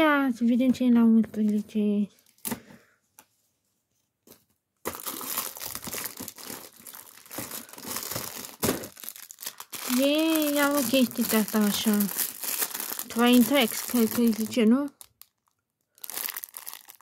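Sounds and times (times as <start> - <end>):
packaging crinkling and tearing: 4.8 - 17.0.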